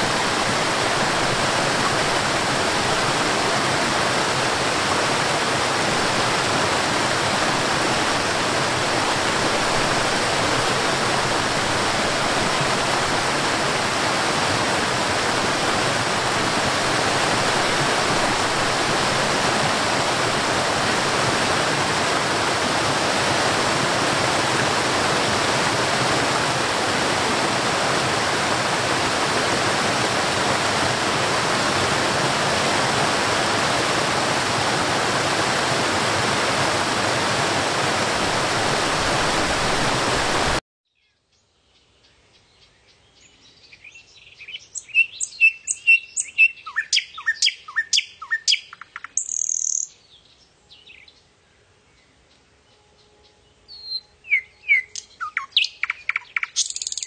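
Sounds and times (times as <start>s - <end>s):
waterfall rushing: 0.0s - 40.6s.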